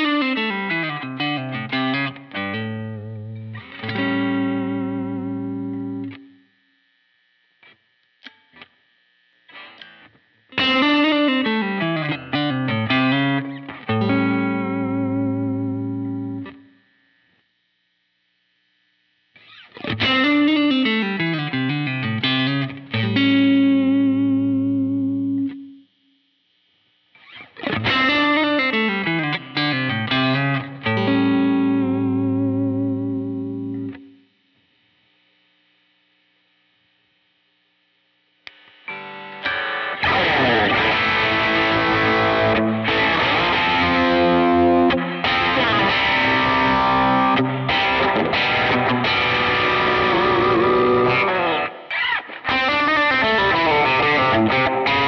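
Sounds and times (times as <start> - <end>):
electric guitar phrase: 0.0 - 6.4, 9.6 - 16.8, 19.4 - 26.0, 27.2 - 34.3, 38.9 - 55.0.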